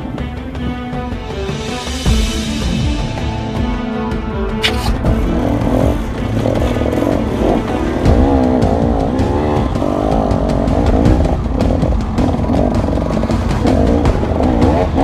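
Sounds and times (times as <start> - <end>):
motorcycle engine revving: 4.5 - 15.0.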